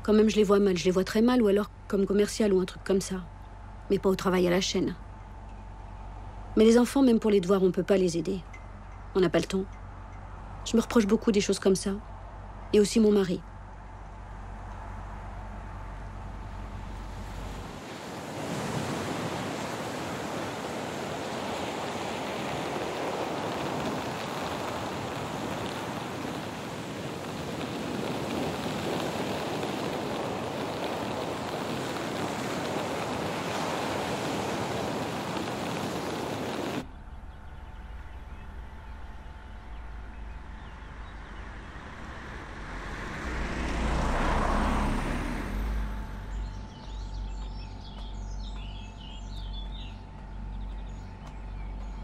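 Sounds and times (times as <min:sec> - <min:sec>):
faint steady hum: 0:00.0 - 0:44.0
wind: 0:00.0 - 0:52.0
surf washing onto beach: 0:17.2 - 0:36.9, 0:42.8 - 0:46.0
low rumble: 0:27.3 - 0:52.0.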